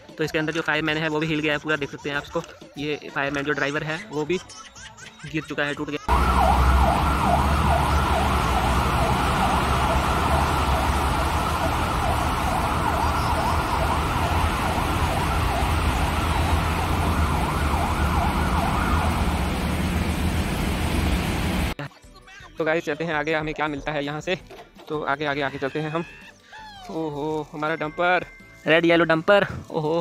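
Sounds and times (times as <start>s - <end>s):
fire engine sirens yelping: 6.1s - 21.8s
low rumble of trucks: 6.1s - 21.8s
rain hissing on wet road: 7.7s - 21.8s.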